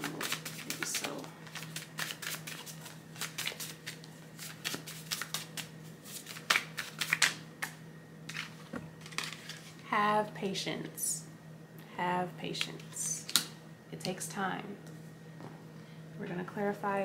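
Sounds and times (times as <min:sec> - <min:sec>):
cards being shuffled: 0:00.0 - 0:09.8.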